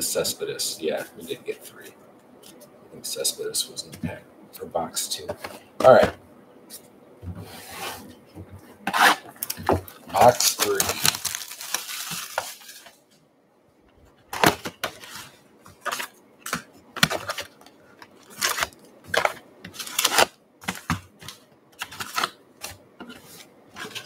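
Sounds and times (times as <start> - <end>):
plastic wrap crinkling: 9.0 - 13.1, 14.3 - 24.0
packs set on wooden table: 9.4 - 12.9.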